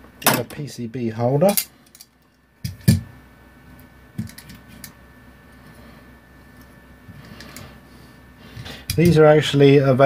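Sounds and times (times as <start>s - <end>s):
circuit boards clicking and tapping: 4.2s - 4.9s.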